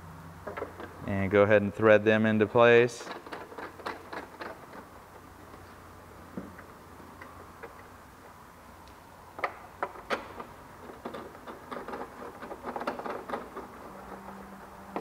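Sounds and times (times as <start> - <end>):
metal spacers clicking and rattling: 2.9 - 5.8, 9.4 - 15.0.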